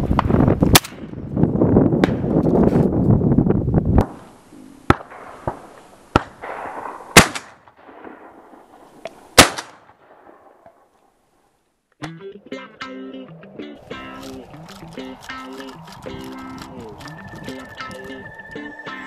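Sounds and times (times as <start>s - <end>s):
faint distant gunshots: 4.0s - 10.9s
loud shotgun shots: 4.9s - 10.7s.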